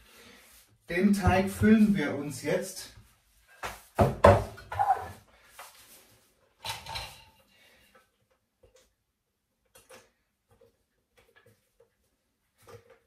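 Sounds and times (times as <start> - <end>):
metal bowl clattering and scraping: 6.6 - 7.4.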